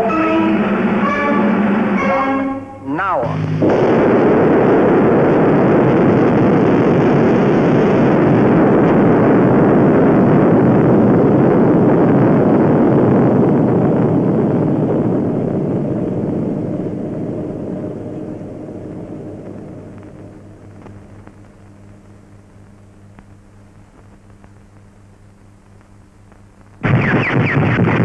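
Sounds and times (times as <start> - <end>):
explosion rumble: 3.2 - 22.1.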